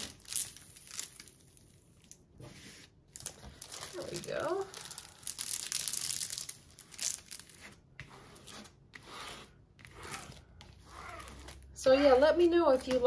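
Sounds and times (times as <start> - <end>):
plastic packaging crinkling: 0.0 - 2.3, 3.1 - 7.6.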